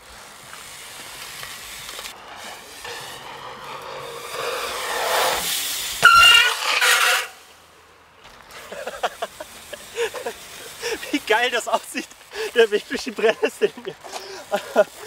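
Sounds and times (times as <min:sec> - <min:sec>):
bike tyre and wind noise: 0:00.0 - 0:15.0
sharp knock with squeal: 0:06.0 - 0:07.3.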